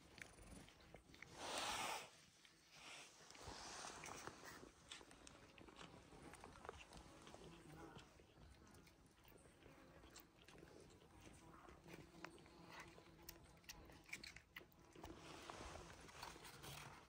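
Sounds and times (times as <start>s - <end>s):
cat chewing wet food: 0.0s - 17.0s.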